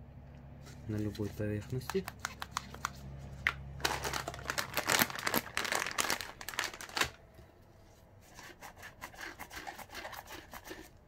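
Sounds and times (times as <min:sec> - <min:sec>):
plastic packet crinkling: 0:03.8 - 0:07.3.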